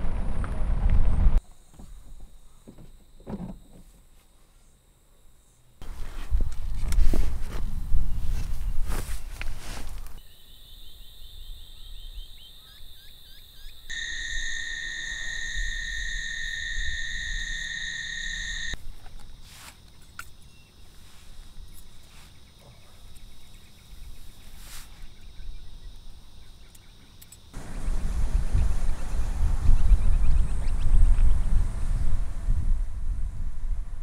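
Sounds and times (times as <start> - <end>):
insects droning: 1.4 - 32.4.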